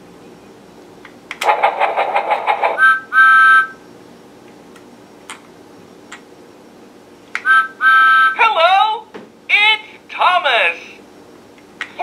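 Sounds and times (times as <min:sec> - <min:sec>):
train whistle toots: 0:02.8 - 0:03.8, 0:07.4 - 0:08.4.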